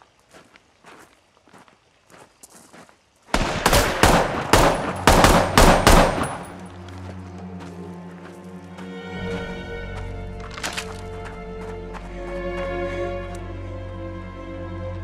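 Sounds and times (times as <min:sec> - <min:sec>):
footsteps on gravel: 0:00.0 - 0:03.2, 0:06.0 - 0:13.4
rapid gunshots: 0:03.4 - 0:06.6
low music drone: 0:03.6 - 0:15.0.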